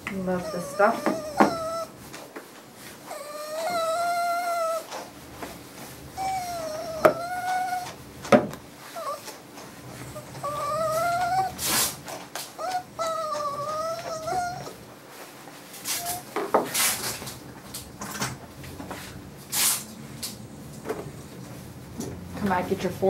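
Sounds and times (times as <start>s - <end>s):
dog yelping: 0.3s - 2.0s, 3.1s - 5.0s, 6.1s - 8.0s, 8.8s - 9.3s, 9.9s - 14.8s, 15.9s - 16.4s
small dog whimpering: 0.3s - 2.0s, 3.1s - 5.0s, 6.2s - 8.0s, 8.8s - 9.3s, 9.9s - 14.8s, 15.9s - 16.4s
brief hissing bursts: 19.5s - 19.9s.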